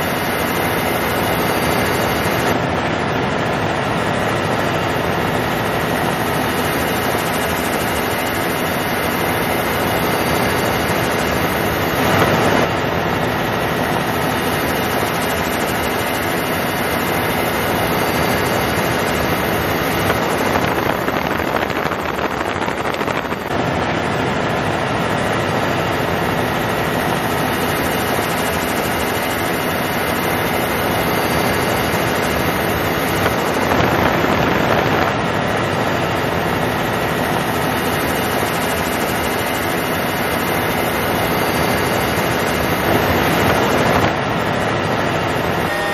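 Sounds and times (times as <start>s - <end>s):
helicopter engine and rotor: 0.0s - 45.9s.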